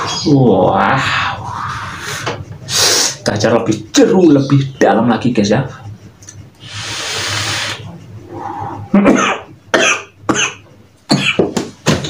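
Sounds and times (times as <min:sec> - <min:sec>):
vape drag airy hiss: 0:06.6 - 0:07.8
person coughing: 0:09.0 - 0:11.6.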